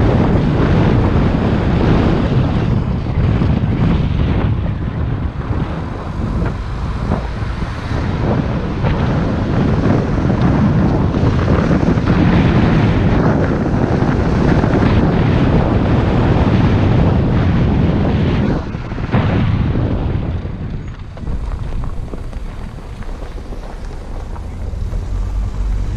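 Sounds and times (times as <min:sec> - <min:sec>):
car engine and tyre noise: 0:00.0 - 0:25.9
wind buffeting microphone: 0:00.0 - 0:25.9.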